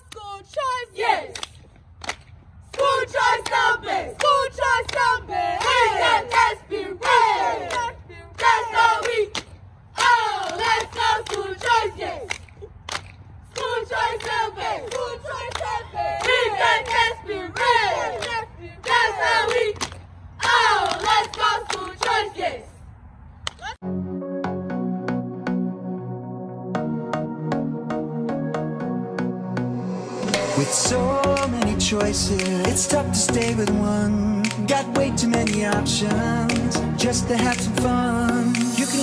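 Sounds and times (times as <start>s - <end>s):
sharp claps: 0.1s - 22.2s, 31.2s - 31.6s, 32.4s - 32.8s, 34.4s - 34.8s, 35.4s - 35.8s, 38.5s - 38.9s.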